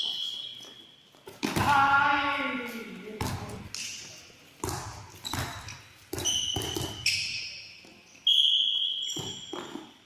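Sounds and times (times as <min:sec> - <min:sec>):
sneaker squeaks on court floor: 0:00.0 - 0:01.6, 0:03.2 - 0:10.0
handballs striking with echoing thuds: 0:01.3 - 0:02.0, 0:03.2 - 0:08.0.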